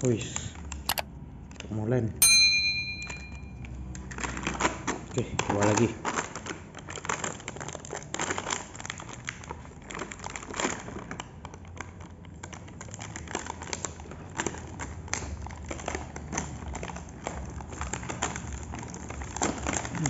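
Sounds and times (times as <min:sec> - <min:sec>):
plastic packaging crinkling: 0:03.7 - 0:20.0.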